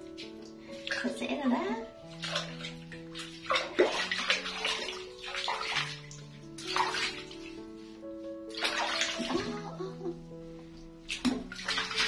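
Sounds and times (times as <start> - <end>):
background music with held notes: 0.0 - 12.0
water splashing and pouring: 2.0 - 7.9, 8.5 - 9.8, 11.1 - 12.0.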